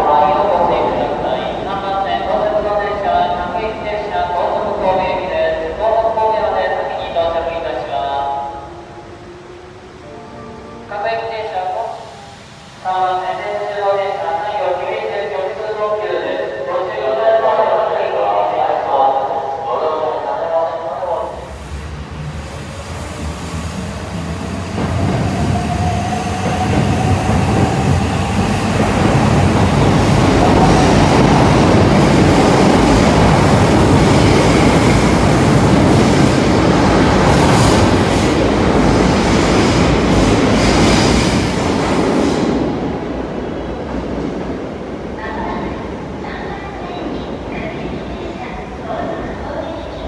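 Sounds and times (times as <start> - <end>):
train wheels clattering on rails: 23.8 - 42.8.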